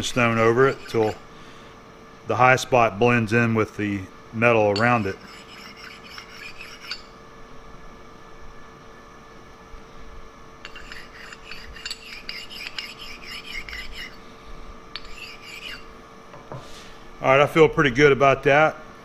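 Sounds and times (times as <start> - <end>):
stone scraping on steel: 0.0 - 1.3, 4.8 - 7.1, 10.6 - 14.2, 15.0 - 15.9.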